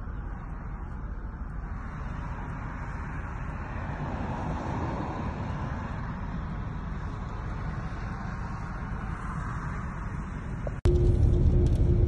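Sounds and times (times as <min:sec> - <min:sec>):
car cabin rumble: 0:10.4 - 0:12.0.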